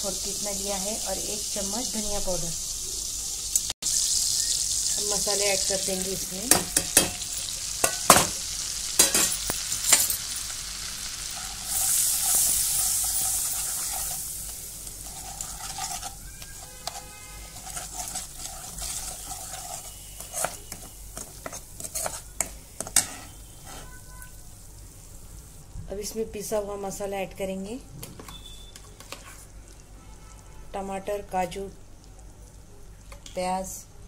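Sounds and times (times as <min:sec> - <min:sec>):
spices sizzling in hot fat: 0:00.0 - 0:34.0
steel spoon clinking against pan: 0:06.5 - 0:08.4, 0:09.0 - 0:10.5.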